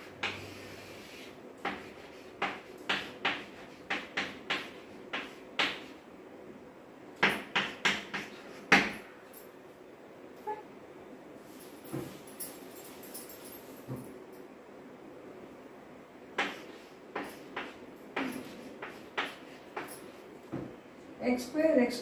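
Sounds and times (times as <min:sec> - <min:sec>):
chalk tapping on blackboard: 0:00.0 - 0:06.0, 0:07.2 - 0:09.0, 0:16.4 - 0:20.2.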